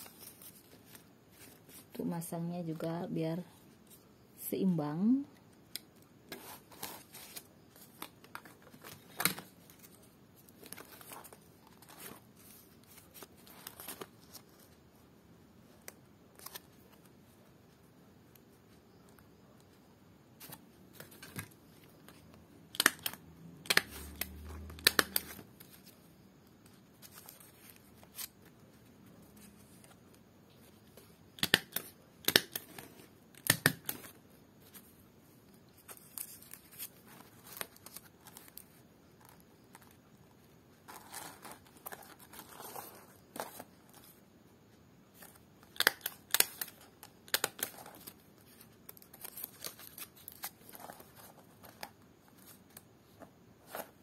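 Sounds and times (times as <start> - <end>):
palm leaf strips clicking and snipping: 22.7 - 25.4, 31.4 - 32.6, 45.7 - 47.7.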